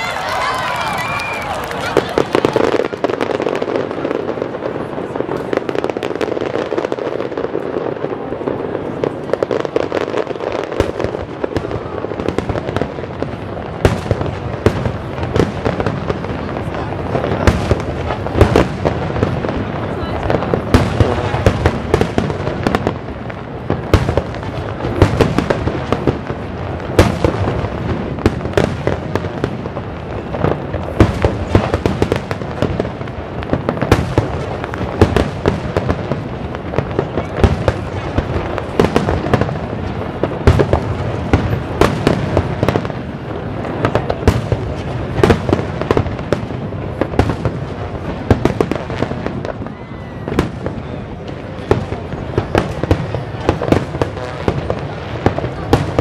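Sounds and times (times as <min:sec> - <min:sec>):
fireworks bangs: 0:00.0 - 0:56.0.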